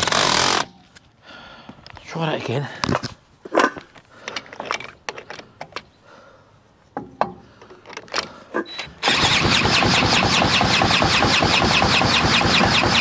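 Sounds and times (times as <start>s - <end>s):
engine cranking without catching: 8.0s - 13.0s.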